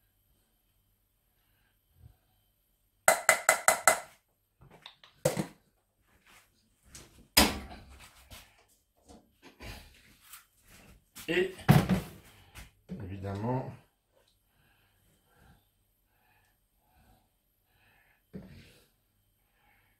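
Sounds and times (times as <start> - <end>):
metal spoon rapping saucepan rim: 3.1 - 4.0
cookware knocking and clattering: 3.1 - 4.1.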